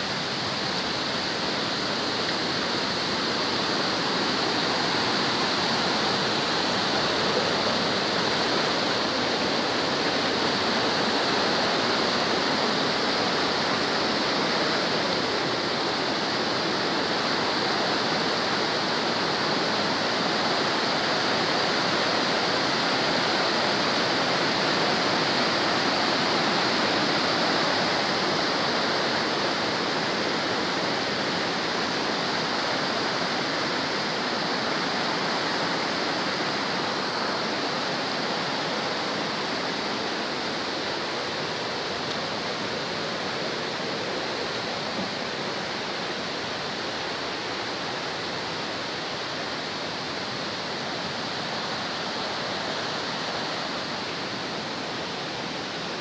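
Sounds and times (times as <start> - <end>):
waterfall rushing over rocks: 0.0 - 56.0.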